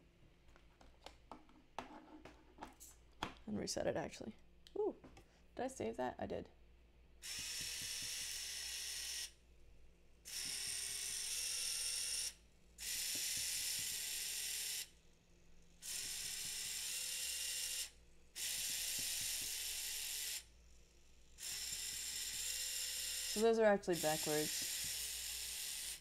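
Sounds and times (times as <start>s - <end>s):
small geared motors whirring: 7.2s - 9.4s, 10.3s - 15.0s, 15.8s - 26.0s.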